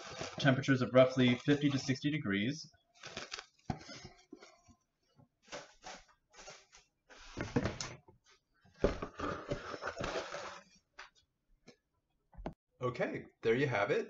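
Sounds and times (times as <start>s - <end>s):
plastic cling wrap crinkling: 0.0s - 1.8s, 2.9s - 3.7s.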